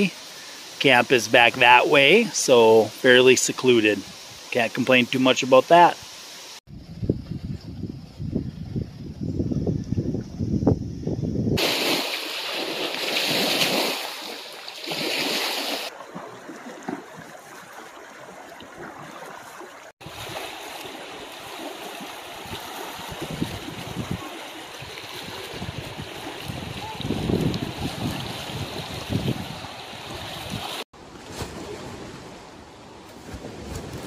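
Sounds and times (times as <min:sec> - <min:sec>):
wind: 0:00.0 - 0:34.0
wind buffeting microphone: 0:06.7 - 0:11.6, 0:22.5 - 0:30.8.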